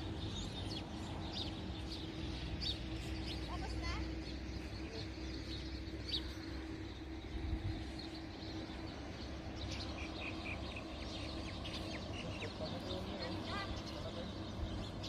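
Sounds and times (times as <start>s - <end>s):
low background rumble: 0.0s - 15.0s
small birds chirping: 0.0s - 15.0s.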